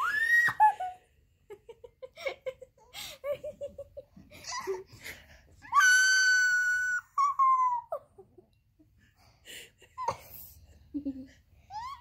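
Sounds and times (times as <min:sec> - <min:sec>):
baby squealing: 0:05.7 - 0:08.0.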